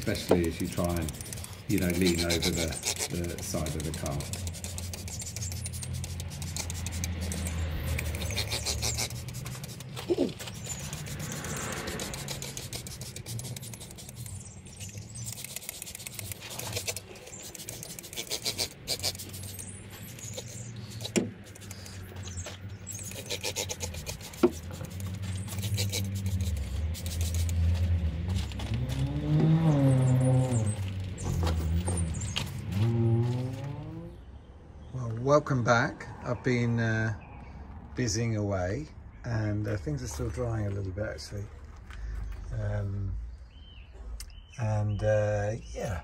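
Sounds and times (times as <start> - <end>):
sharp clicks: 0.0 - 10.0
brush scrubbing: 0.0 - 29.0.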